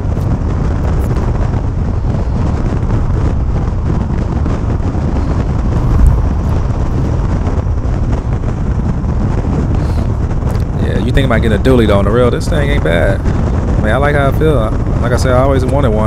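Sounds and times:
road engine and wind noise: 0.0 - 16.0
low thump: 5.6 - 7.6.

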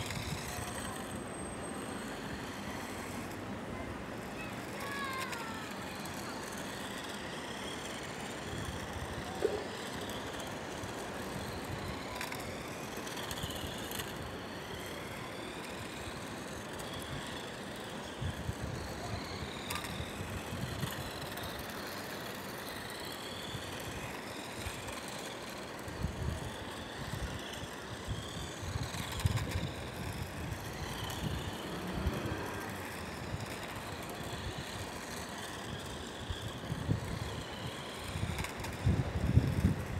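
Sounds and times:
rc car motor whining: 0.0 - 39.9
wind buffeting microphone: 25.9 - 34.8, 35.7 - 39.9.

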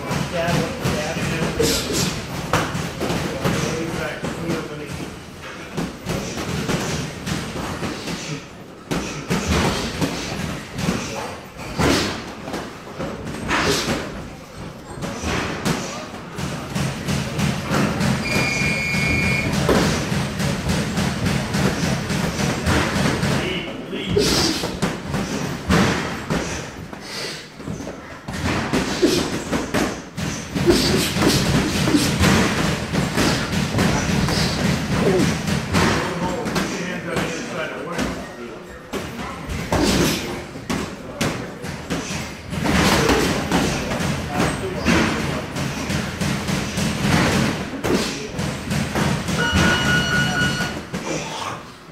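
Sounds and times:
boxing gloves thudding: 15.0 - 23.4.

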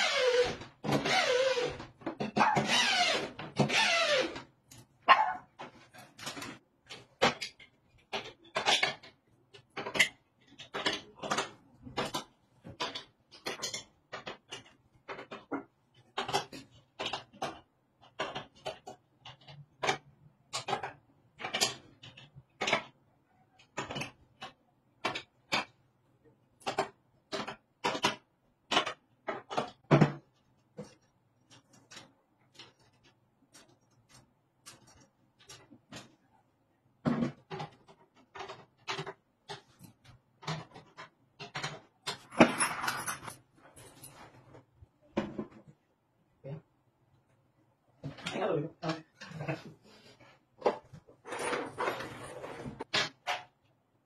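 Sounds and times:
dog barking: 5.1 - 5.5.

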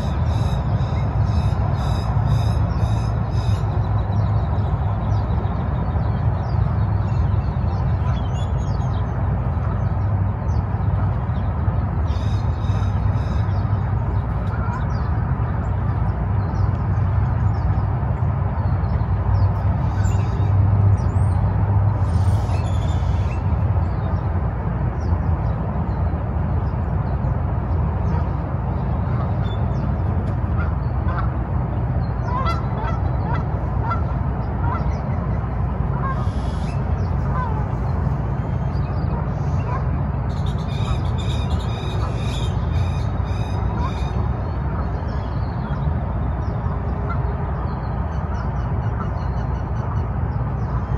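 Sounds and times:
steady low rumble: 0.0 - 50.9
waterfowl calling and honking: 30.5 - 31.4, 32.2 - 45.2.

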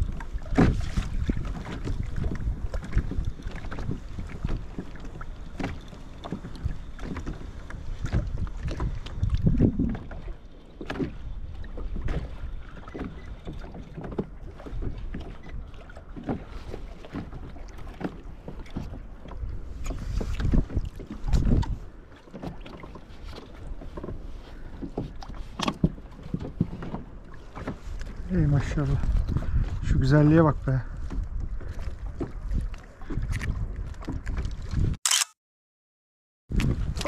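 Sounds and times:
wind rumbling on microphone: 0.0 - 22.0, 27.7 - 35.0, 36.5 - 37.0
small water splashes: 0.0 - 29.9
knocks against kayak hull: 0.4 - 1.9.

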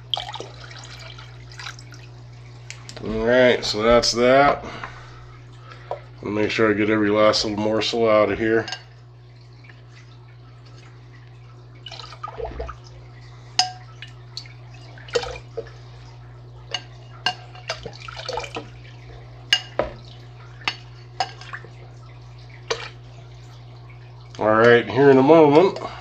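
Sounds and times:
water splashing and dripping: 0.0 - 3.1, 9.0 - 25.8
low hum: 0.0 - 26.0.

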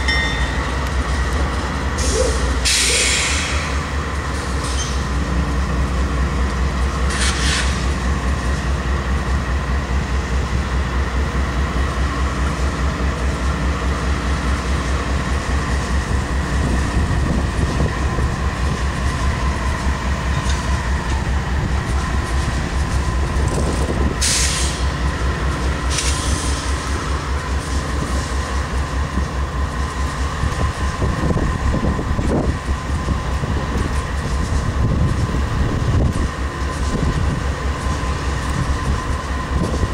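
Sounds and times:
diesel locomotive idling: 0.0 - 39.9
short air hisses: 2.0 - 3.8, 7.1 - 7.9, 24.2 - 24.9.

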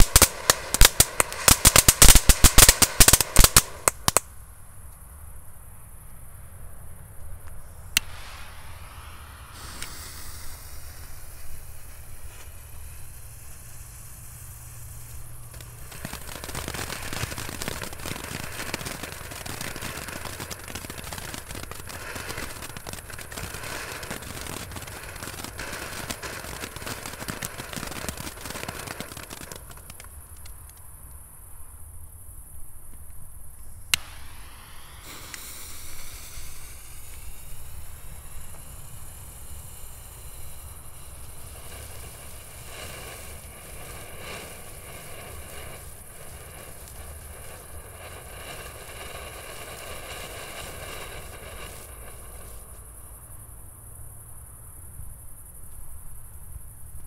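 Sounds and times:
firework crackling: 0.0 - 4.6, 7.5 - 31.1, 32.6 - 53.6
firework sharp pop: 7.9 - 12.8, 33.9 - 38.8.

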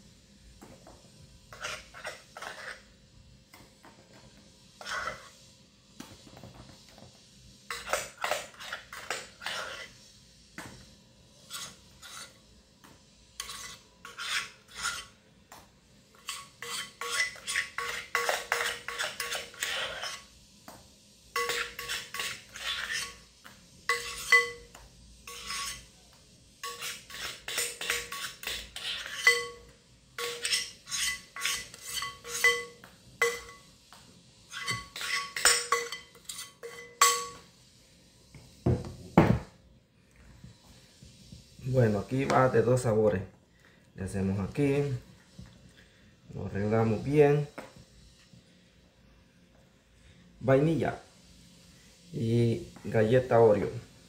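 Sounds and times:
spoon scraping ice cream: 1.5 - 2.9, 4.8 - 5.4, 7.7 - 10.0, 11.4 - 12.4, 13.4 - 15.2, 16.1 - 20.3, 21.4 - 23.2, 23.9 - 26.0, 26.6 - 33.7, 34.5 - 37.4
spoon clinking against bowl: 16.2 - 19.8, 21.4 - 23.2, 23.9 - 25.8, 26.6 - 33.7, 34.5 - 37.5.

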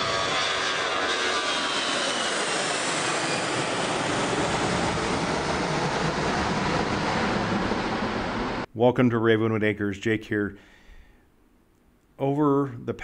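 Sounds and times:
jet airliner passing overhead: 0.0 - 8.7.

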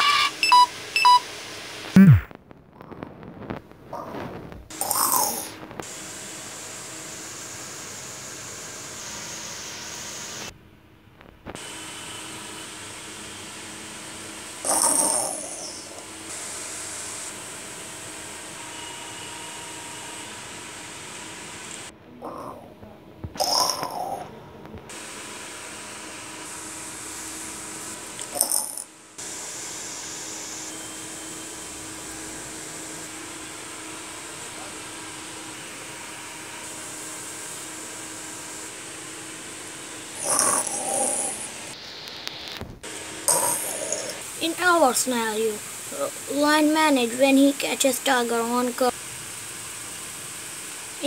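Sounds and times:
steady background hiss: 0.3 - 11.6, 12.3 - 51.0
short louder sounds: 2.0 - 2.3
sudden loud burst: 2.0 - 2.3.

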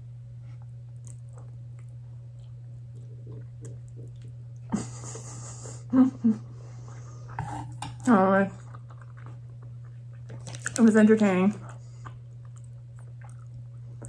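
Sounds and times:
chewing: 0.5 - 4.7, 7.3 - 10.9, 11.5 - 14.0.

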